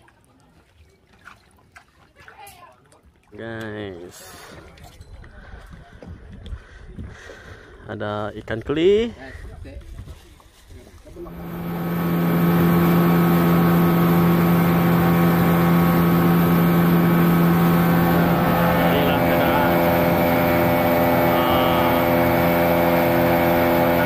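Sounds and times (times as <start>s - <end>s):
water splashing along hull: 0.0s - 7.8s, 9.8s - 24.0s
outboard motor droning: 11.1s - 24.0s.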